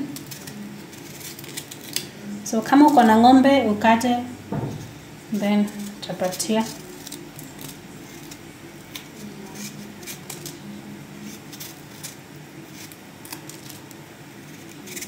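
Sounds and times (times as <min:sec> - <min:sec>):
knife scraping squash skin: 0:00.0 - 0:02.1, 0:05.3 - 0:15.0.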